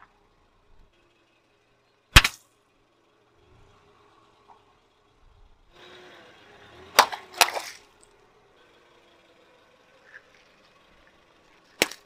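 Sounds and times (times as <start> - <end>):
car tyre rolling on asphalt: 0.0 - 12.0
balloons bursting: 2.2 - 2.4.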